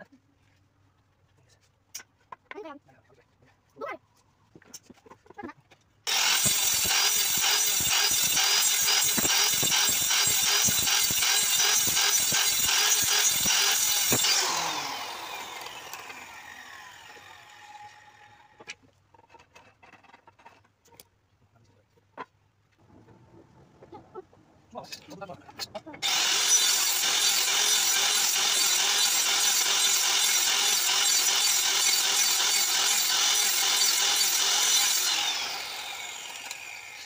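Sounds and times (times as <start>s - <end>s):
circular saw cutting wood: 6.1s - 18.7s, 24.8s - 37.0s.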